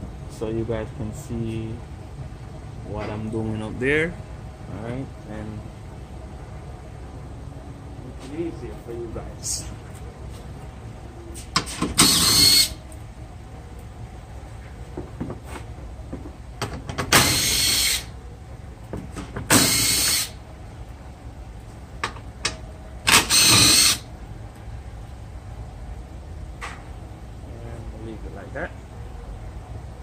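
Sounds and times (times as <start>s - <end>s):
cordless drill bursts: 12.0s - 12.8s, 17.1s - 18.1s, 19.5s - 20.4s, 23.1s - 24.1s.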